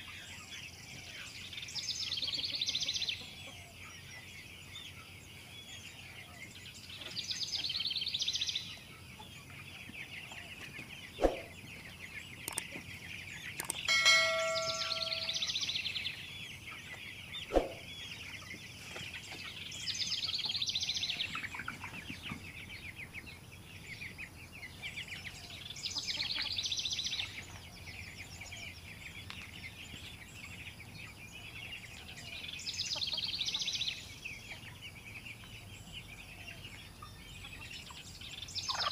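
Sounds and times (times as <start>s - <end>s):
chicks peeping and chirping: 0.0s - 38.9s
bell-like ring: 13.9s - 15.9s.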